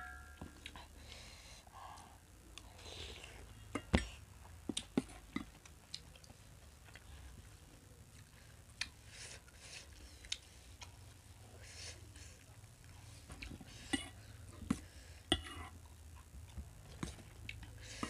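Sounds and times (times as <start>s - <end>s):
spoons clinking steel bowls: 0.0s - 0.4s
people chewing food: 0.0s - 18.0s.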